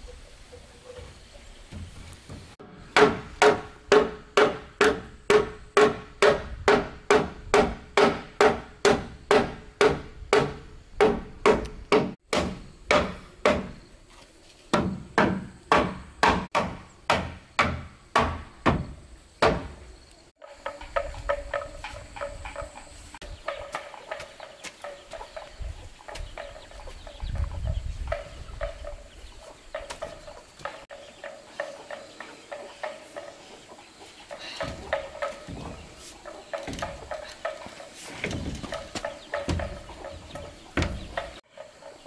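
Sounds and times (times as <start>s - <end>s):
chickens clucking: 0.0s - 2.6s, 20.4s - 42.0s.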